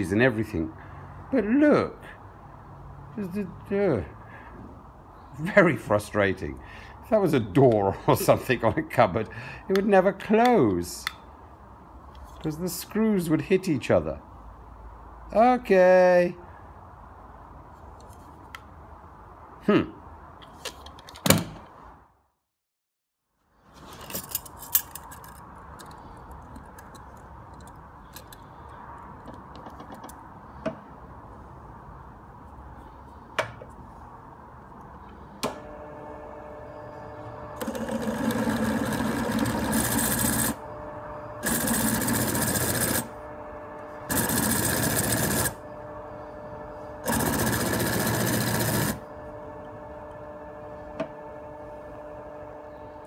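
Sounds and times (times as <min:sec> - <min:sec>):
drill press running: 0:35.4 - 0:53.0
drill bit grinding into steel: 0:37.6 - 0:40.7, 0:41.4 - 0:43.1, 0:44.1 - 0:45.6, 0:47.0 - 0:49.0.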